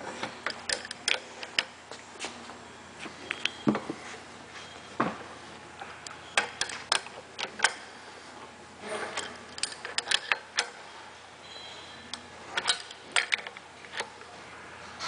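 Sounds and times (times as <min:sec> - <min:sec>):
wrench clicking on metal: 0:09.5 - 0:10.8.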